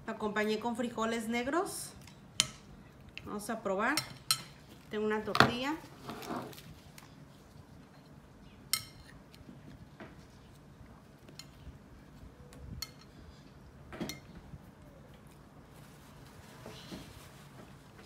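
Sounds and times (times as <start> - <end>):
fork clinking on a plate: 8.7 - 9.2.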